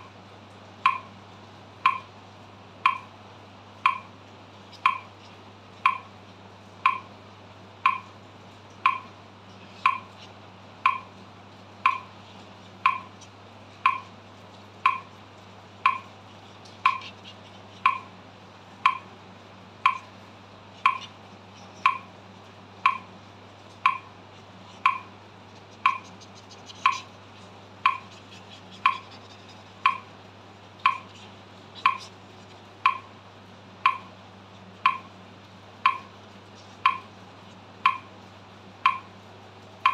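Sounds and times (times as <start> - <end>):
metronome clicking: 0.8 - 1.1, 1.8 - 2.1, 2.8 - 3.1, 3.8 - 4.1, 4.8 - 5.1, 5.8 - 6.1, 6.8 - 7.1, 7.9 - 8.1, 8.8 - 9.1, 9.8 - 10.1, 10.8 - 11.1, 11.8 - 12.1, 12.8 - 13.1, 13.8 - 14.1, 14.8 - 15.1, 15.8 - 16.1, 16.8 - 17.1, 17.8 - 18.1, 18.8 - 19.1, 19.8 - 20.1, 20.8 - 21.1, 21.8 - 22.1, 22.8 - 23.1, 23.8 - 24.1, 24.8 - 25.1, 25.8 - 26.1, 26.8 - 27.1, 27.8 - 28.1, 29.8 - 30.1, 30.8 - 31.1, 31.8 - 32.1, 32.9 - 33.1, 33.8 - 34.1, 34.8 - 35.1, 35.8 - 36.2, 36.8 - 37.1, 37.8 - 38.1, 38.9 - 39.1.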